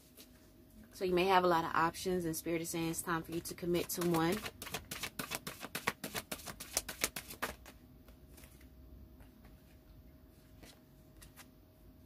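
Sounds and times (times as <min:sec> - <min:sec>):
cards being shuffled: 0:03.3 - 0:08.7, 0:10.5 - 0:11.5.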